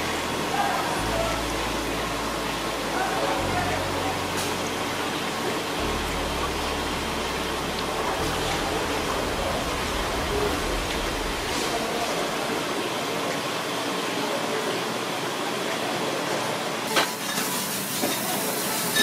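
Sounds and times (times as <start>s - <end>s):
steady rushing noise: 5.7s - 13.8s.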